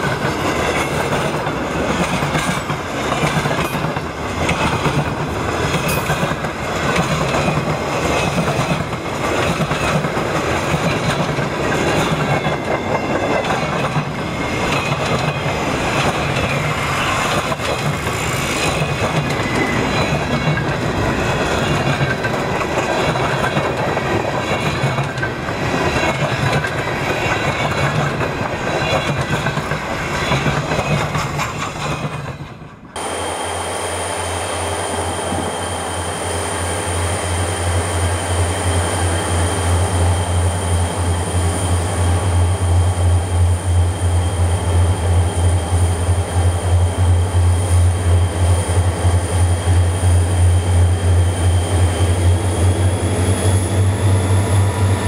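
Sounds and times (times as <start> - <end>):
wheels clacking over rail joints: 0.0 - 33.0
steel wheels rumbling on rails: 0.0 - 55.0.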